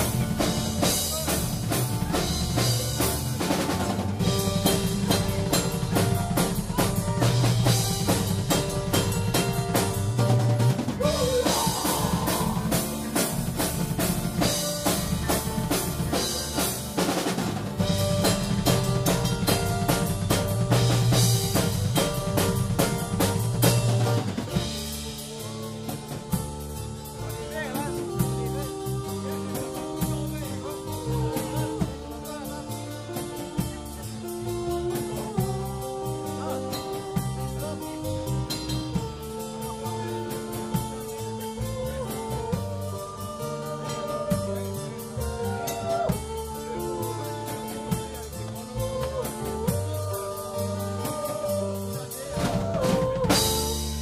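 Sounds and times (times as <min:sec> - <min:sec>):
acoustic guitar: 0:00.0 - 0:54.0
rapid drum kit drumming: 0:00.0 - 0:54.0.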